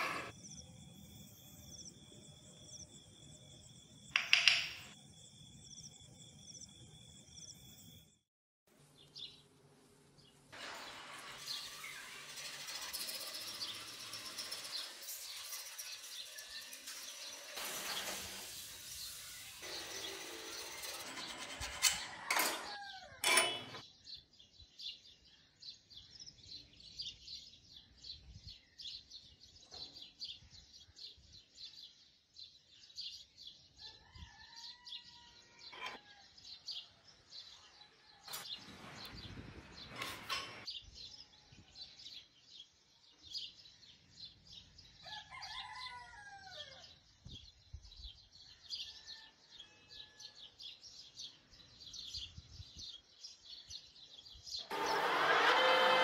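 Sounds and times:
rooster crowing: 33.8s - 36.2s, 45.0s - 46.9s, 54.7s - 56.0s.

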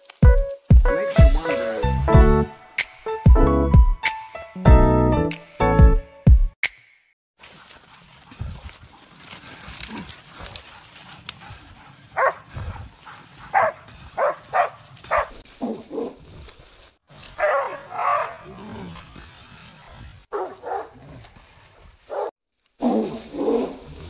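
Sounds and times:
dogs barking: 10.6s - 15.4s, 17.4s - 18.9s, 20.3s - 21.0s, 22.1s - 22.3s.

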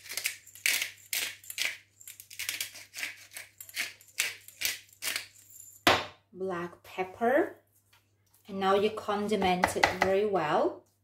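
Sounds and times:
pepper grinder grinding: 0.0s - 5.5s.

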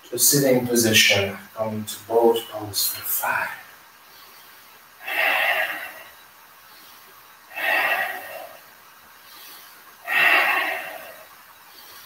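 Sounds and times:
man breathing heavily: 4.0s - 12.0s.

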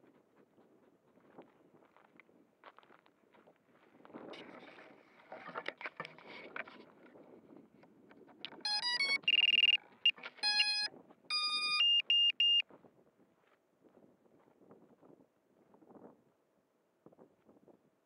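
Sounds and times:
electronic startup beeps from motors: 8.7s - 12.6s.

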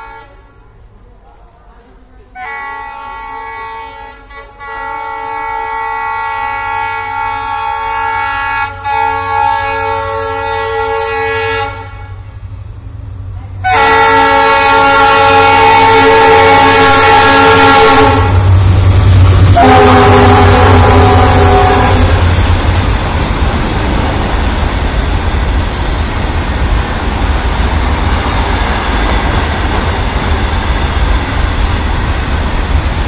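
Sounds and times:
locomotive horn blasts: 0.0s - 0.4s, 2.4s - 12.2s, 13.6s - 18.6s, 19.4s - 22.3s
locomotive rumbling past: 6.2s - 33.0s.

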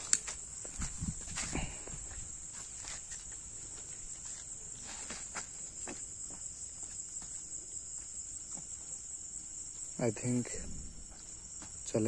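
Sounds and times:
footsteps on concrete: 0.0s - 8.8s, 11.2s - 11.9s
crickets chirping: 0.0s - 12.0s.

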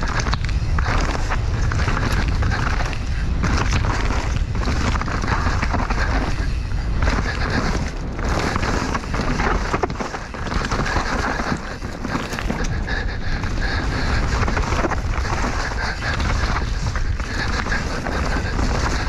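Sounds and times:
mountain bike rattling: 0.0s - 19.0s
wind buffeting microphone: 0.0s - 19.0s
bike tyres knocking on rocks: 12.0s - 12.6s.

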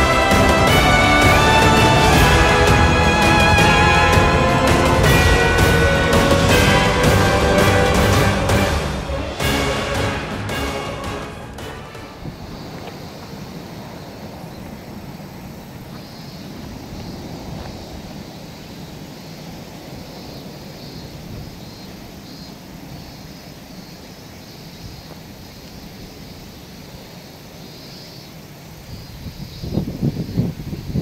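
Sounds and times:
steady low rumble: 0.0s - 15.8s.

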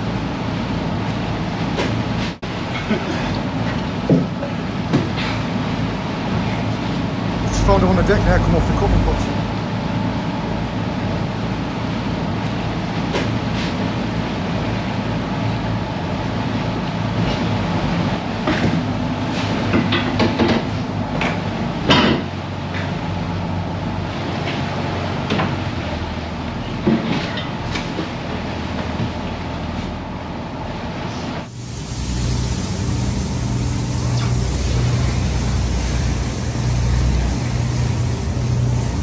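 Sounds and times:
boat engine running: 7.3s - 9.6s, 31.5s - 39.0s.

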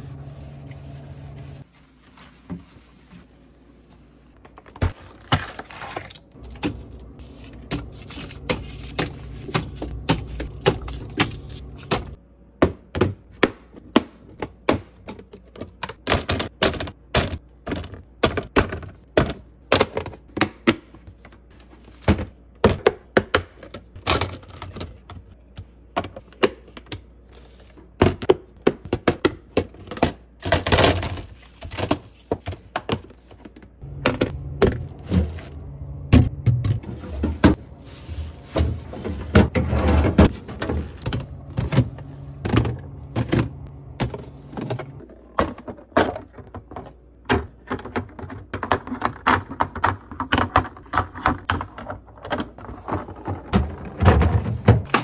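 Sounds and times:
plastic containers clicking and knocking: 7.6s - 21.4s, 22.0s - 27.1s, 27.9s - 34.9s, 40.2s - 55.0s
sponge scrubbing plastic drawer: 36.6s - 45.1s, 52.5s - 55.0s.

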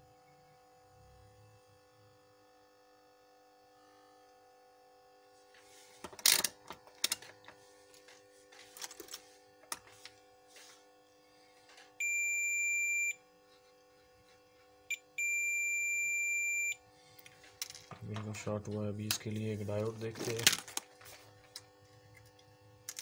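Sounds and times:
multimeter continuity beeper: 12.0s - 13.3s, 14.9s - 16.9s.

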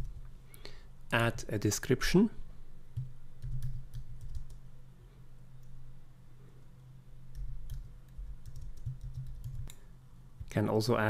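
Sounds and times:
keyboard typing: 3.0s - 4.6s, 7.3s - 9.8s.

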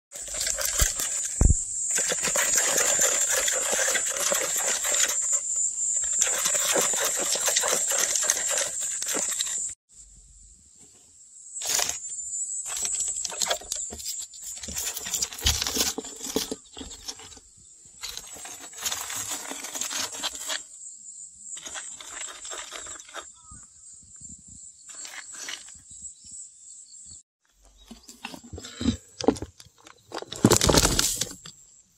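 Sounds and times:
claws scratching on plastic: 0.1s - 9.8s, 11.6s - 12.0s, 12.7s - 17.4s, 18.0s - 20.7s, 21.6s - 23.4s
soil crumbling: 0.1s - 9.8s, 12.7s - 17.4s, 18.0s - 20.6s, 27.7s - 31.5s.

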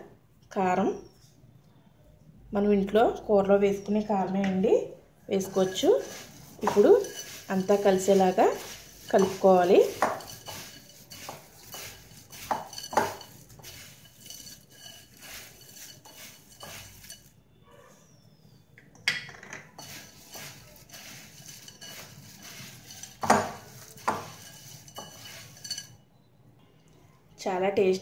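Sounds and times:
dry snacks rustling: 5.4s - 17.3s, 19.8s - 25.9s.

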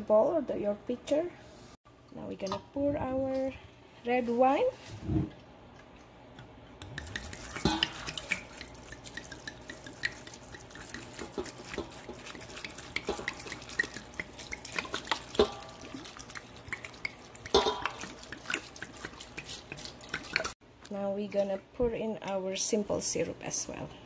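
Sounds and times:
liquid dripping: 5.7s - 20.6s
wine pouring and splashing: 7.0s - 20.6s.

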